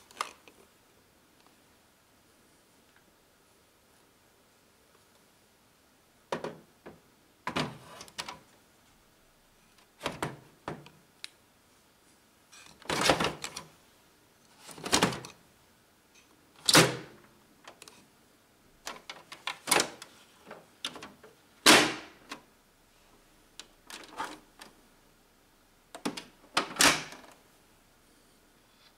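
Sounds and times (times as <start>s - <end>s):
plastic knocks and clicks of printer: 6.3s - 8.4s.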